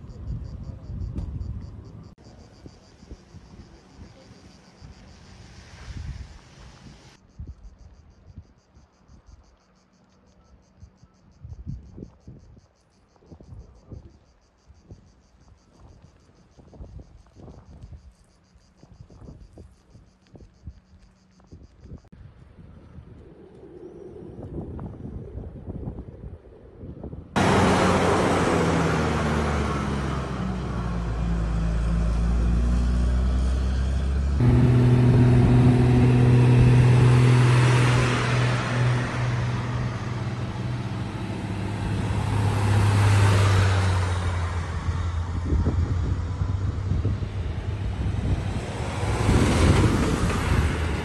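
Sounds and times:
heavy truck engines idling: 0:27.4 - 0:49.1
rushing noise: 0:34.1 - 0:51.0.

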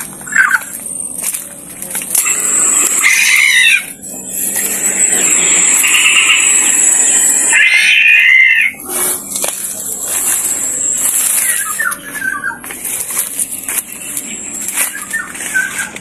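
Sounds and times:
high steady whine: 0:00.0 - 0:16.0
recorded bird calls from speaker: 0:00.2 - 0:00.7, 0:11.4 - 0:12.6, 0:14.9 - 0:16.0.

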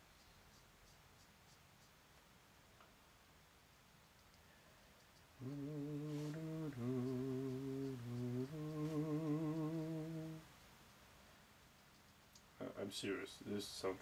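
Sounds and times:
brush pen scratching paper: 0:00.0 - 0:02.1
man humming a slow tune: 0:05.4 - 0:10.5.

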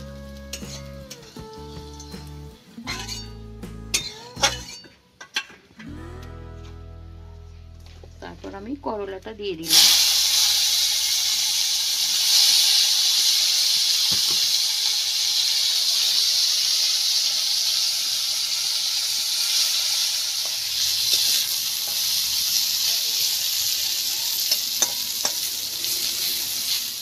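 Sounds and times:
vegetables sizzling in oil: 0:00.0 - 0:03.3, 0:09.6 - 0:27.0.

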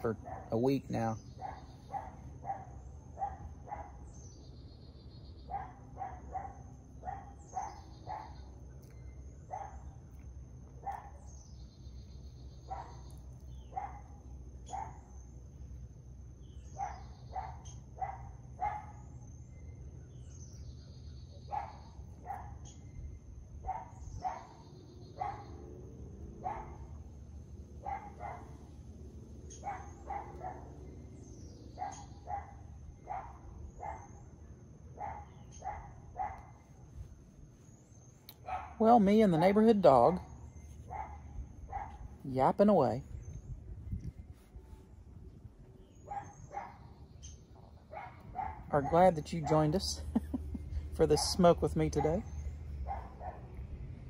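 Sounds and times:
dog barking: 0:00.1 - 0:04.0, 0:05.5 - 0:08.4, 0:09.5 - 0:09.9, 0:10.8 - 0:11.2, 0:13.7 - 0:15.0, 0:16.8 - 0:19.1, 0:21.5 - 0:22.6, 0:23.7 - 0:25.6, 0:26.4 - 0:27.1, 0:27.8 - 0:28.7, 0:29.6 - 0:30.8, 0:31.8 - 0:34.2, 0:35.0 - 0:36.7, 0:38.4 - 0:38.8, 0:40.9 - 0:42.1, 0:46.1 - 0:46.9, 0:47.9 - 0:50.3, 0:52.0 - 0:53.6.

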